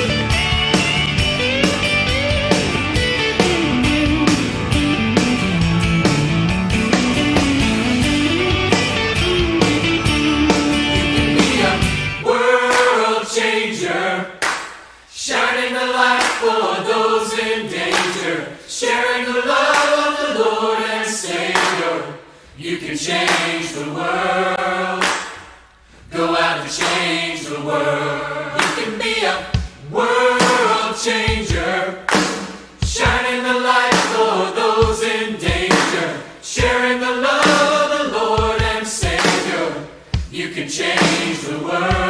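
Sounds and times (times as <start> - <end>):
choir singing: 10.5 - 14.4, 15.1 - 25.4, 26.0 - 32.1, 32.8 - 42.0.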